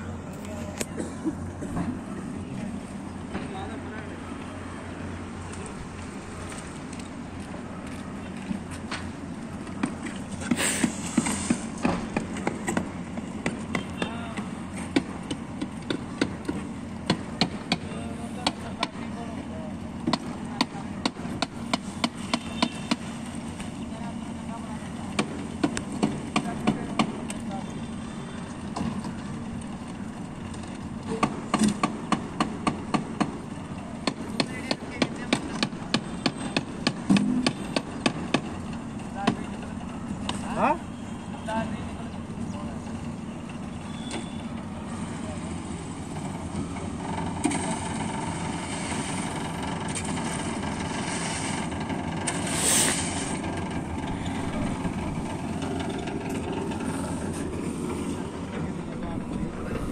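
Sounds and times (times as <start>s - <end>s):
construction machinery engine running: 0.0s - 59.9s
rush of noise: 52.4s - 59.9s.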